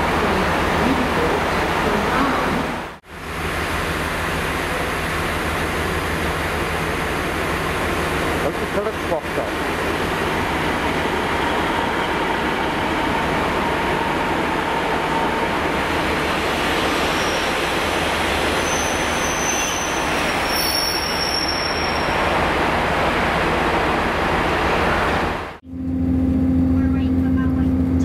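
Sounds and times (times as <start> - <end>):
diesel train engine: 0.0 - 28.0
wheel squeals: 18.5 - 22.2.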